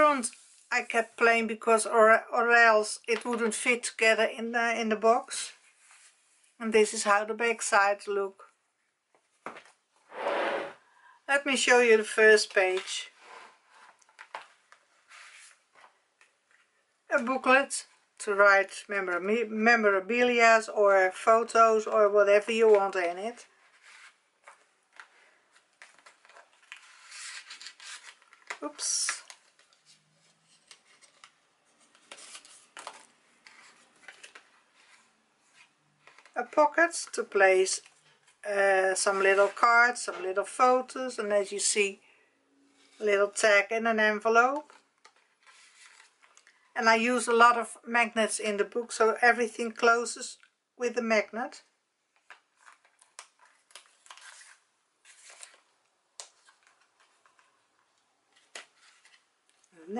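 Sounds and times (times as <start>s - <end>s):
cardstock pages rustling and sliding: 12.7s - 16.7s, 22.6s - 36.4s, 44.6s - 46.5s, 52.2s - 59.7s.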